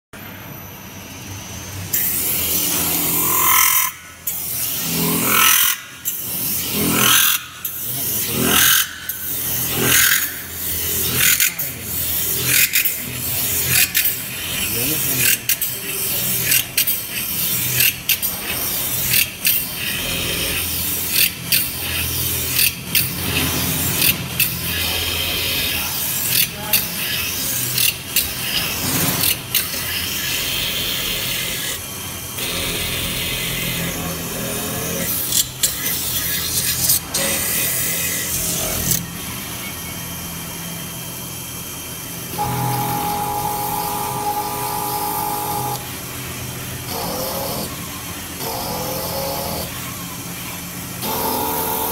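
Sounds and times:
multi-tone machine whine: 0.2 - 26.0, 26.9 - 51.9
machine hum: 27.0 - 51.9.

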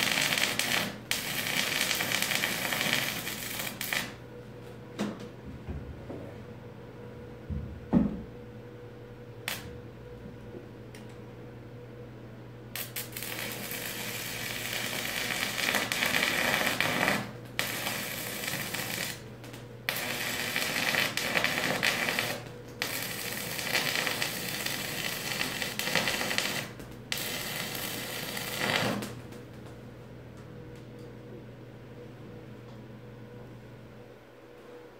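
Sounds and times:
welding arc crackling: 0.0 - 4.2, 9.5 - 9.7, 12.8 - 29.7
steady low hum: 0.0 - 34.9.

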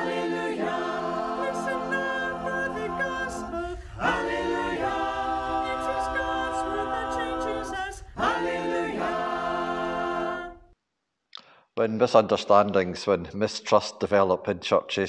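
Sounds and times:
unaccompanied choir singing: 0.0 - 10.8.

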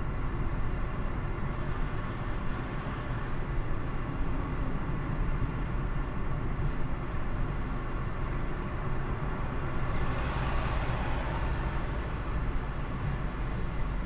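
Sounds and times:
car road and engine rumble: 0.0 - 14.0
truck passing: 9.1 - 14.0.

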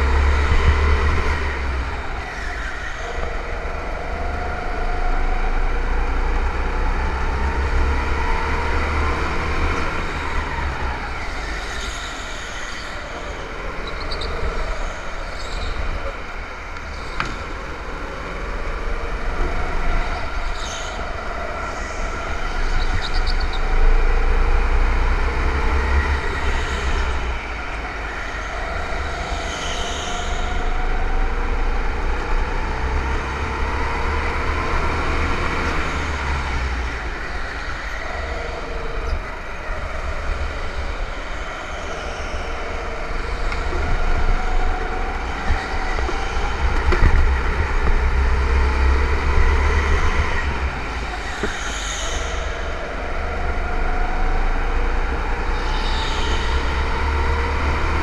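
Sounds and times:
go-kart engine accelerating: 0.0 - 58.0
heavy low rumble: 13.1 - 57.7.

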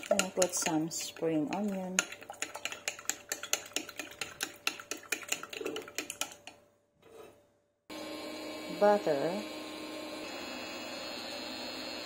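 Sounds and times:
whisk beating eggs in bowl: 0.0 - 6.6.

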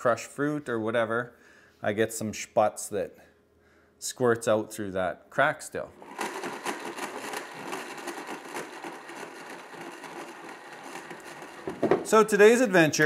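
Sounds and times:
blender motor whirring: 6.0 - 12.2.

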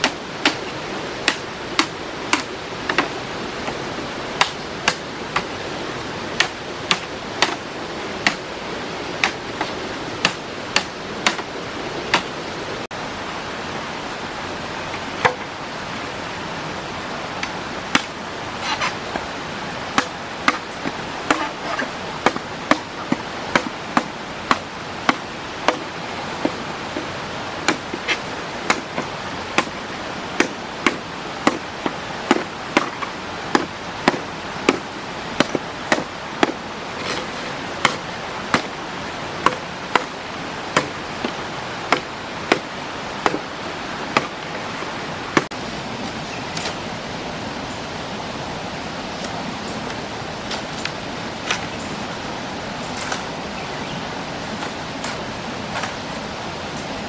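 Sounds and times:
blade chopping: 0.0 - 3.1, 6.4 - 8.5, 20.0 - 29.8, 30.4 - 38.8, 39.4 - 44.5
flowing water rushing: 0.0 - 57.0.

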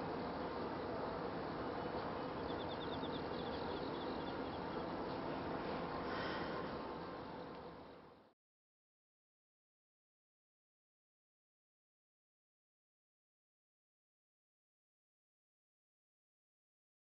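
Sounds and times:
outdoor background noise: 0.0 - 8.4
faint high chirping: 0.8 - 5.4.

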